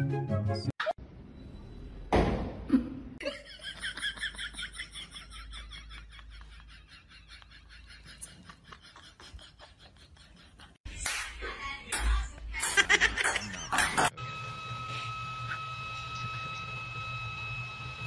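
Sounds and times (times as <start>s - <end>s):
person laughing high-pitched: 12.6s - 14.1s.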